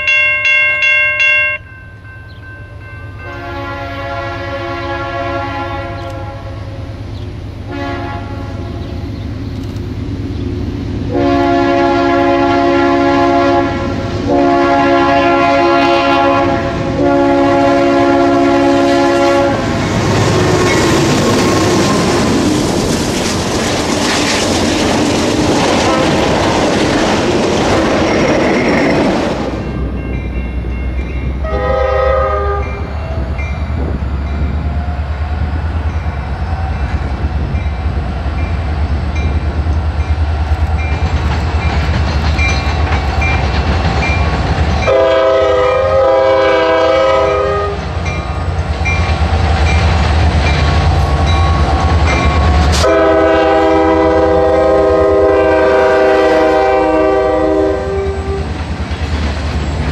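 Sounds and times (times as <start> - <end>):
diesel locomotive engine rumble: 0.0 - 59.9
train wheels on rail: 0.0 - 59.9
train air horn: 3.2 - 6.8, 7.7 - 9.0, 11.1 - 19.8, 25.8 - 26.3, 31.4 - 33.2, 44.8 - 47.9, 52.7 - 58.6.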